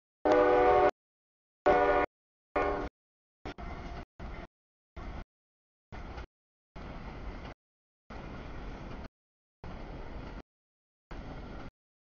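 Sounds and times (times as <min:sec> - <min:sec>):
freight train rumbling past: 0:06.0 - 0:10.4, 0:11.1 - 0:11.7.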